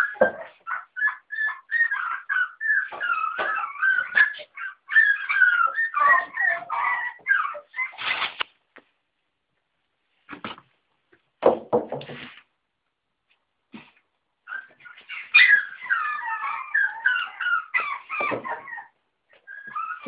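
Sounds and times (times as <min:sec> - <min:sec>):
puppies whining and whimpering: 0:00.0 - 0:08.3, 0:14.5 - 0:20.0.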